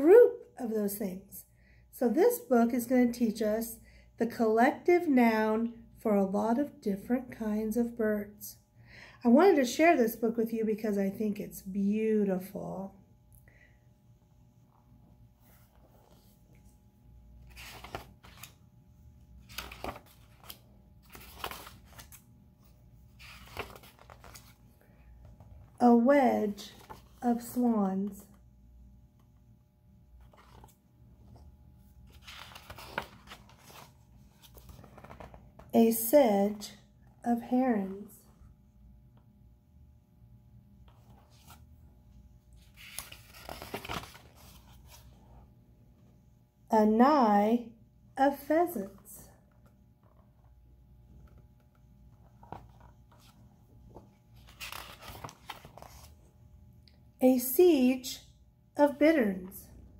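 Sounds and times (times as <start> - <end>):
book pages turning: 15.4 - 16.8, 17.4 - 18.7, 19.3 - 25.8, 26.5 - 28.4, 30.1 - 35.7, 40.8 - 41.8, 42.5 - 45.4, 49.5 - 56.3.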